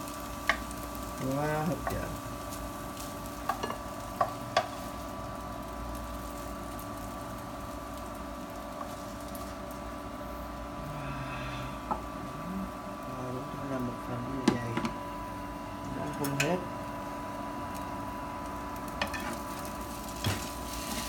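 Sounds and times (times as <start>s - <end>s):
kitchen appliance electrical hum: 0.0s - 21.0s.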